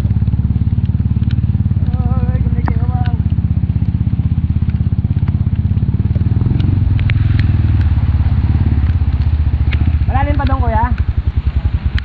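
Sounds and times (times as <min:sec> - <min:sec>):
dirt bike engine running: 0:00.0 - 0:12.0
sharp clicks: 0:06.4 - 0:11.2.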